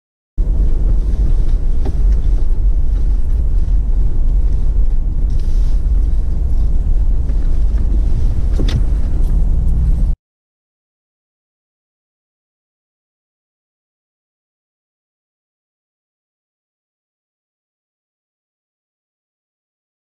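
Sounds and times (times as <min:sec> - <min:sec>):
engine and drivetrain rumble: 0:00.4 - 0:10.2.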